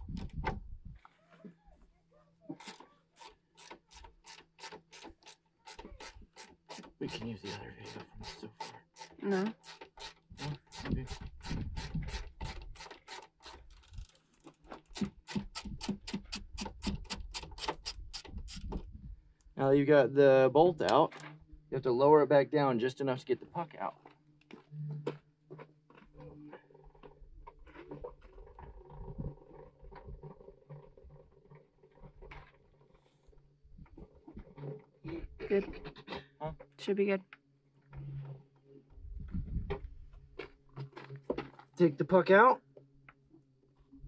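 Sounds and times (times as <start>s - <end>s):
ratchet clicking rapidly: 2.6s - 14.2s.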